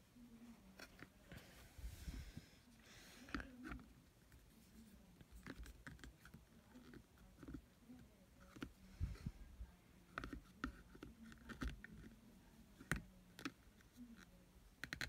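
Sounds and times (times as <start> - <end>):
faint room hum: 0.0 - 15.0
hard plastic clicks and taps: 14.8 - 15.0.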